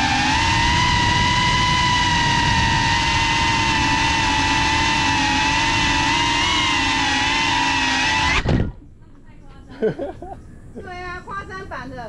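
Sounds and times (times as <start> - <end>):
quadcopter motors whining: 0.0 - 8.8.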